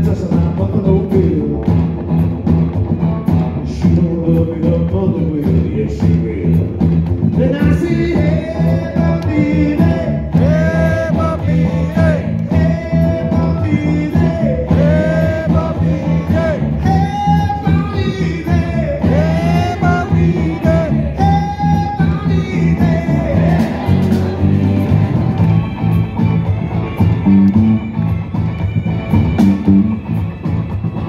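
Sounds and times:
man singing: 0:00.0 - 0:01.8, 0:03.6 - 0:24.4
rock band playing: 0:00.0 - 0:31.0.

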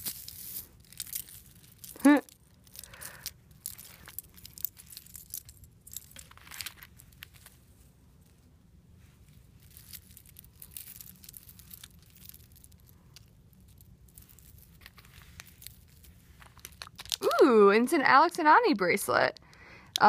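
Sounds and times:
jewelry beads and chains clicking: 0:00.0 - 0:07.4, 0:09.6 - 0:17.4.

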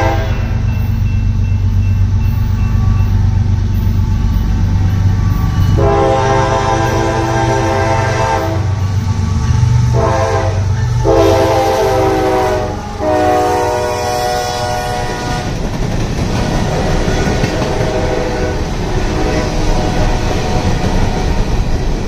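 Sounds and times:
locomotive horn blasts: 0:00.0 - 0:00.6, 0:05.2 - 0:15.6, 0:16.6 - 0:21.4
freight cars clattering on rails: 0:14.9 - 0:22.0.

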